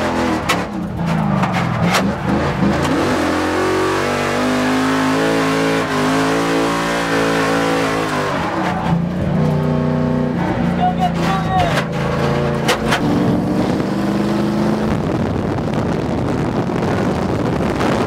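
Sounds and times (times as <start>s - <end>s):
car engine revving: 0.0s - 18.0s.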